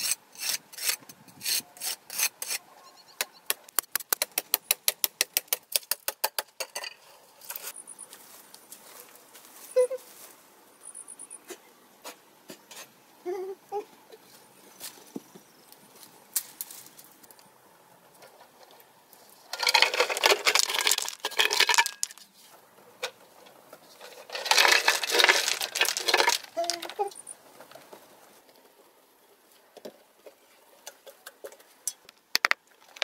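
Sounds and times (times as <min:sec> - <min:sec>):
stones clattering onto rocks: 0:19.5 - 0:22.3, 0:24.2 - 0:27.1.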